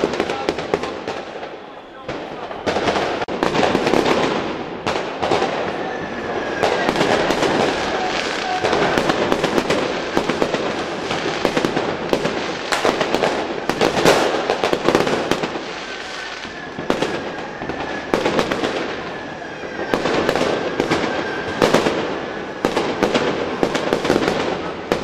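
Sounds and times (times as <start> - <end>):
fireworks bangs and crackling: 0.0 - 25.0
thin steady whistle: 1.3 - 2.7, 5.6 - 9.0, 15.7 - 23.2.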